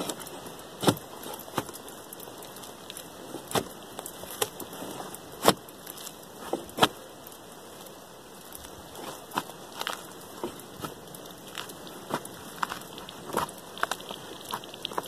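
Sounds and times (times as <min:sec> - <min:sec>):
axe chopping into bark: 0:00.8 - 0:01.8, 0:05.4 - 0:05.6.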